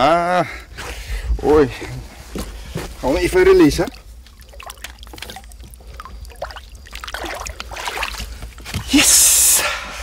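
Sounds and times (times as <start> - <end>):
water trickling and sloshing: 3.1 - 9.0
fish splashing: 3.9 - 8.6.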